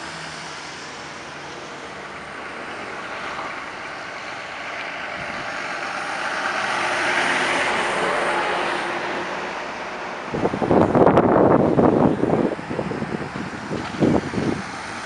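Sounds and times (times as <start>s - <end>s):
truck engine passing: 0.0s - 15.0s
trailer wheels rolling: 10.3s - 15.0s.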